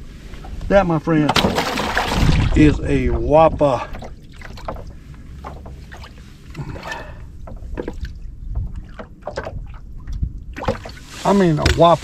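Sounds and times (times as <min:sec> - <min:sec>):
low steady rumble: 0:00.0 - 0:11.8
light knocks in a boat: 0:04.0 - 0:06.1, 0:07.4 - 0:10.9.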